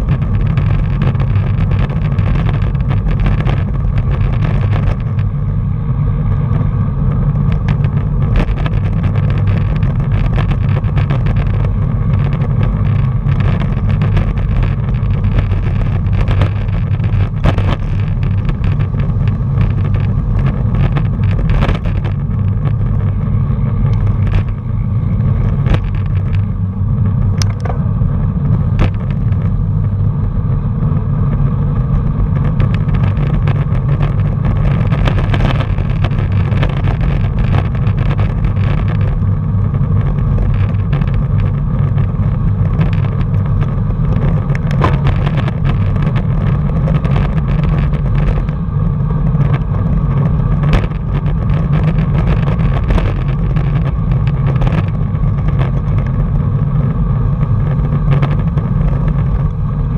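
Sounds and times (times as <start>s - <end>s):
wind buffeting microphone: 0.0s - 59.9s
bike knocks and rattles: 42.6s - 48.6s.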